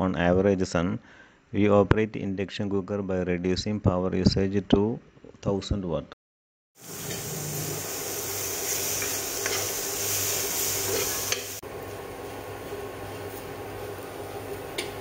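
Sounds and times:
food sizzling in frying pan: 6.8s - 15.0s
metal spoon scraping pan: 10.9s - 11.6s.

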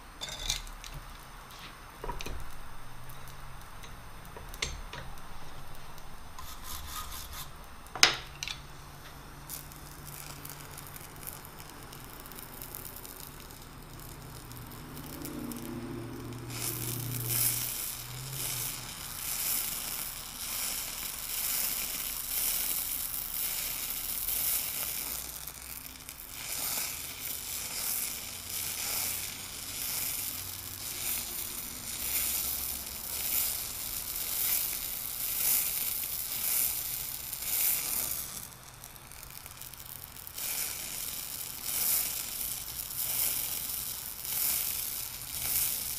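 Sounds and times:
spray torch hissing and crackling: 0.0s - 45.9s.

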